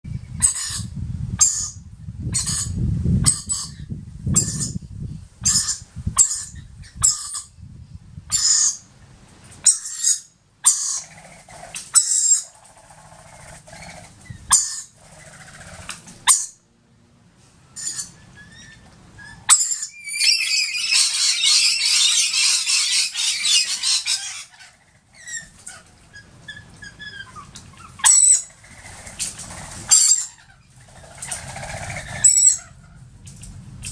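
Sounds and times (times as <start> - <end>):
young parrot squeaking: 0.4 - 4.8, 5.4 - 7.5, 9.6 - 16.6, 17.7 - 32.8
parrots chattering screeches: 9.6 - 16.6, 17.8 - 32.8.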